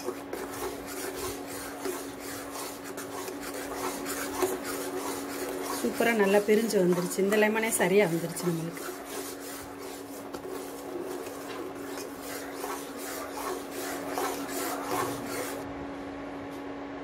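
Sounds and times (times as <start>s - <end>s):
metal spoon scraping steel pan: 0.0s - 15.6s
cooktop hum: 0.0s - 16.7s.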